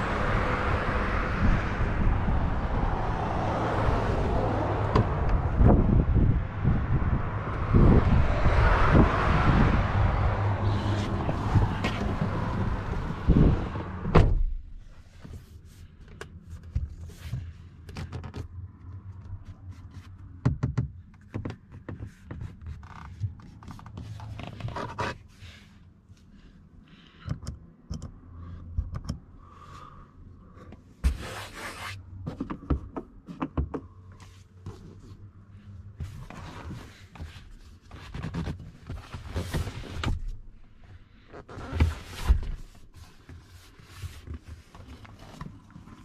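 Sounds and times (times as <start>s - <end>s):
wind noise: 0.0s - 14.4s
car door shutting: 10.8s - 14.6s
clicks and knocks in car cabin: 11.2s - 15.4s, 16.0s - 25.2s, 27.2s - 29.3s, 32.2s - 35.1s.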